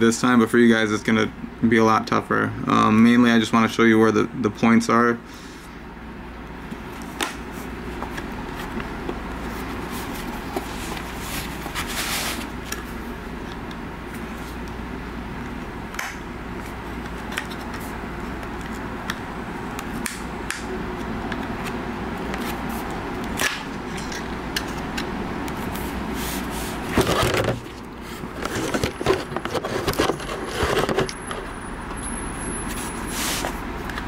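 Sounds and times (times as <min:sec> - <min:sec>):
low background hum: 0:00.0 - 0:34.0
screwdriver scraping metal case: 0:28.4 - 0:31.4.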